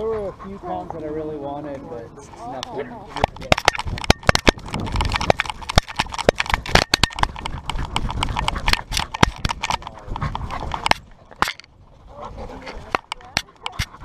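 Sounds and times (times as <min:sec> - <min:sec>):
camera knocking against its rig: 0:03.2 - 0:11.7.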